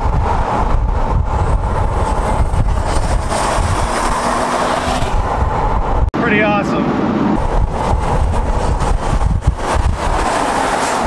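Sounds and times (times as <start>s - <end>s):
turbos spooling: 0.0s - 6.1s, 7.4s - 11.0s
road and wind noise: 0.0s - 11.0s
car engine accelerating: 6.9s - 11.0s.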